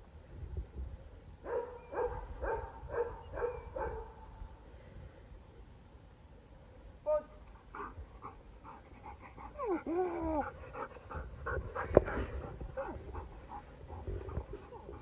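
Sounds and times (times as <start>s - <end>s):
dog panting: 7.7s - 15.0s.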